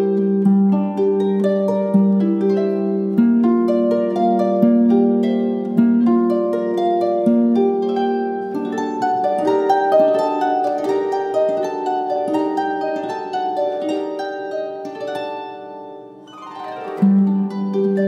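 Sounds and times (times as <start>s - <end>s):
plucked string melody: 0.0s - 18.0s.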